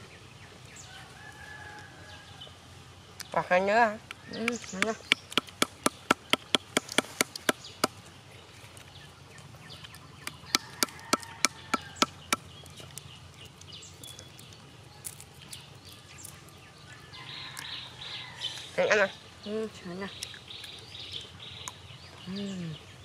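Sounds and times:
bamboo tube tapping nuts: 4.1s - 8.0s.

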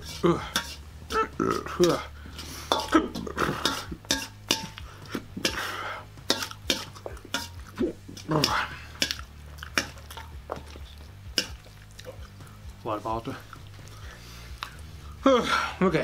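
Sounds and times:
metal utensil scraping bowl: 0.0s - 14.6s
sharp clinks against metal bowl: 0.5s - 0.8s, 2.7s - 5.6s, 6.2s - 10.4s, 11.3s - 11.6s.

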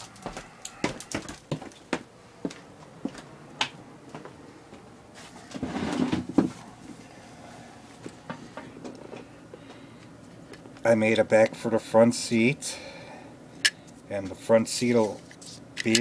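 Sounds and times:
rustling and scraping: 5.1s - 7.0s, 14.9s - 16.0s.

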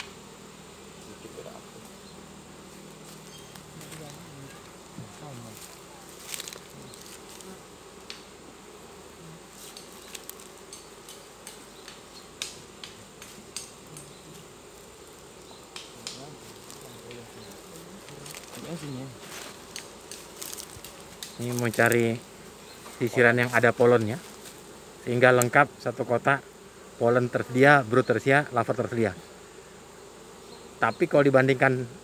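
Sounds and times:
bees buzzing: 0.0s - 32.0s
wooden hive frames clicking: 9.7s - 25.6s.

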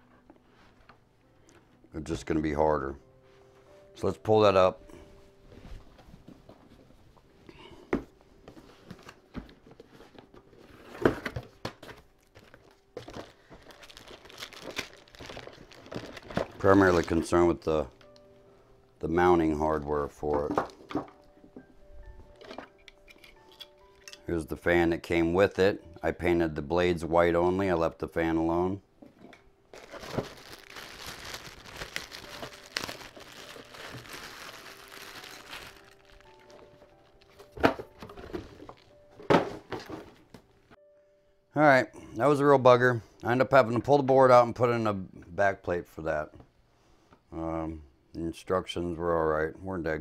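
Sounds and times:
packaging crinkling and rustling: 8.6s - 18.2s, 29.7s - 40.4s.

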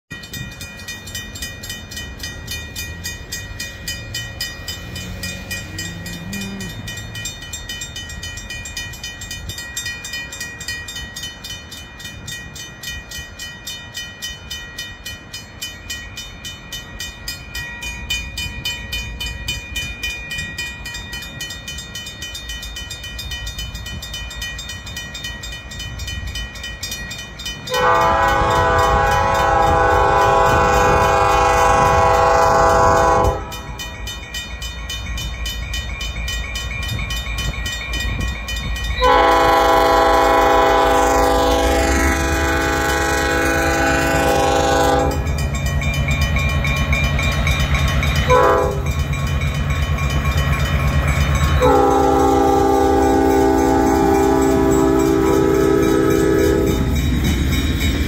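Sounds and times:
locomotive rumble: 0.1s - 13.4s, 14.4s - 58.0s
locomotive air horn: 27.7s - 33.8s, 39.0s - 45.3s, 48.3s - 48.9s, 51.6s - 56.9s.

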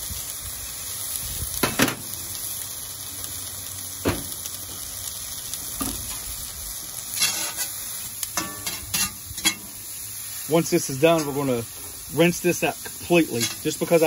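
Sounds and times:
vegetables sizzling in a pan: 0.0s - 14.0s
metal spatula scraping a pan: 7.1s - 7.8s, 8.4s - 9.9s, 11.1s - 12.0s, 13.1s - 14.0s.

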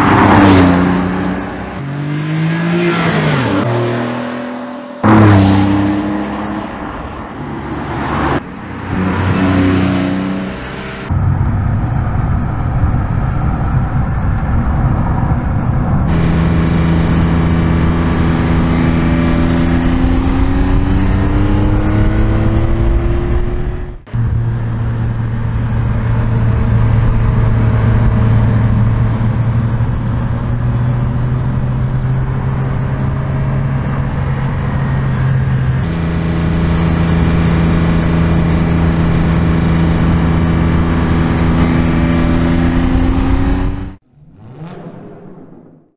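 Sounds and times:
car exhaust revving: 16.1s - 45.9s.

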